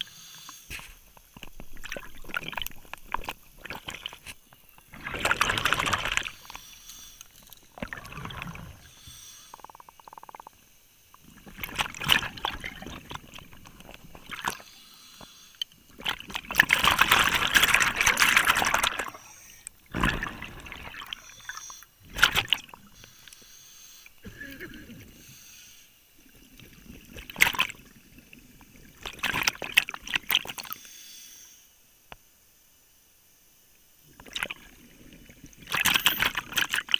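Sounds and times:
air bubbling underwater: 0:04.9 - 0:06.5, 0:07.8 - 0:08.9, 0:19.9 - 0:21.2.

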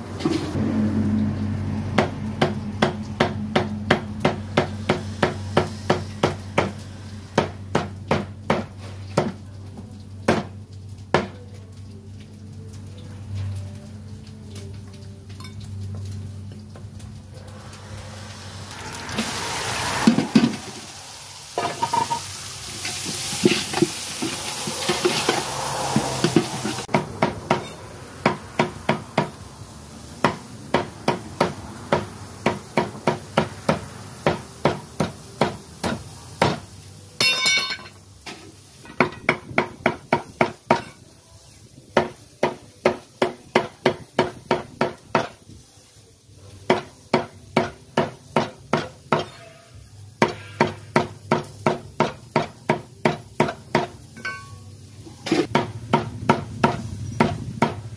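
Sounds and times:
metal spatula scraping pot: 0:22.9 - 0:26.9, 0:49.2 - 0:50.8.

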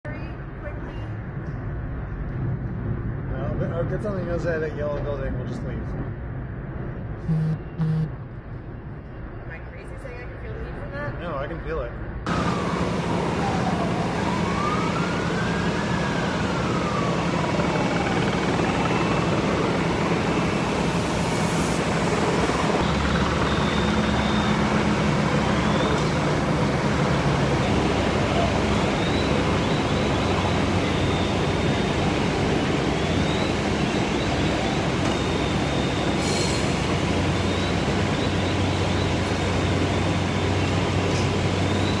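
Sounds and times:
street noise: 0:00.0 - 0:42.0
sirens wailing: 0:12.3 - 0:42.0
truck engines idling: 0:12.3 - 0:42.0.

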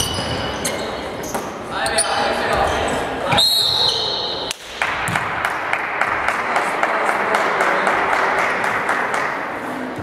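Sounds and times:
spectators clapping: 0:04.5 - 0:09.6.

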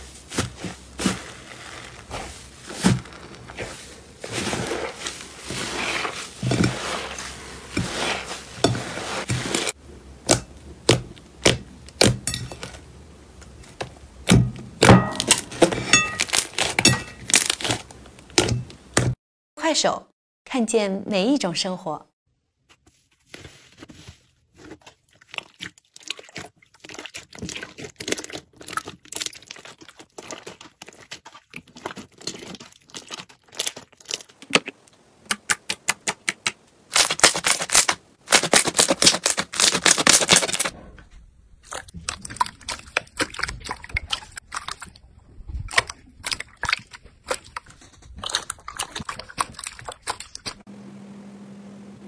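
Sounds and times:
slime kneaded in water: 0:00.0 - 0:19.2, 0:23.3 - 0:40.8, 0:41.6 - 0:50.7
slime crackling and popping: 0:25.2 - 0:34.7, 0:35.5 - 0:40.7.

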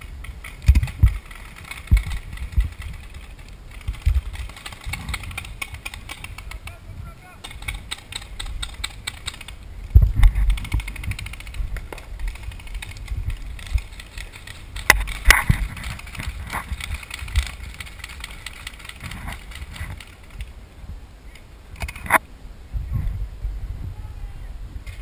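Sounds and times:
wind rumble on camera: 0:00.0 - 0:25.0
paintball markers firing: 0:00.3 - 0:20.2.

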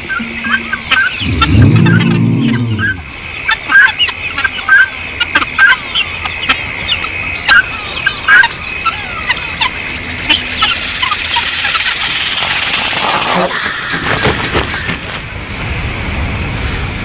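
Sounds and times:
steady high-pitched hum: 0:00.0 - 0:11.7
guinea fowl alarm calls: 0:00.0 - 0:12.4.

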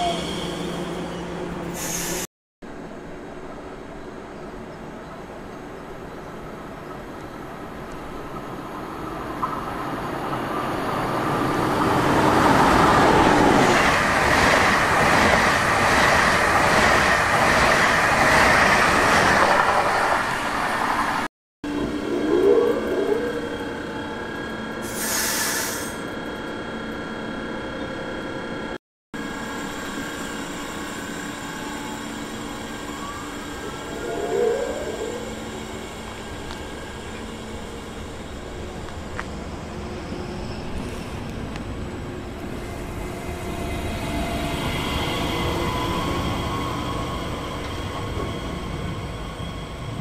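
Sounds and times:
train humming: 0:00.0 - 0:50.0.

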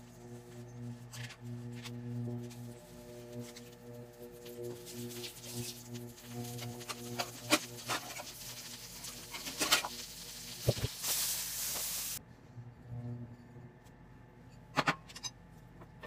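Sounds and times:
steady low hum: 0:00.0 - 0:10.8, 0:12.2 - 0:16.0
butter sizzling in frying pan: 0:04.4 - 0:12.2.

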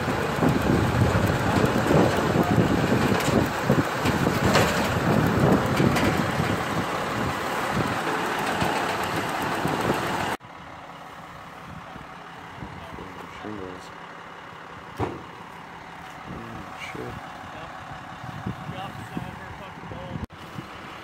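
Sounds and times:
clanks and rattles: 0:00.0 - 0:10.4
truck engine and conveyor running: 0:00.0 - 0:21.0.

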